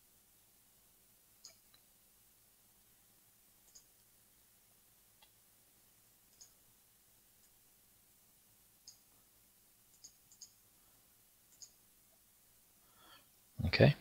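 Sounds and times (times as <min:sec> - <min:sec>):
computer mouse clicks: 0:01.4 - 0:01.9, 0:03.6 - 0:04.1, 0:06.3 - 0:06.6, 0:08.8 - 0:09.0, 0:09.9 - 0:10.6, 0:11.5 - 0:11.8.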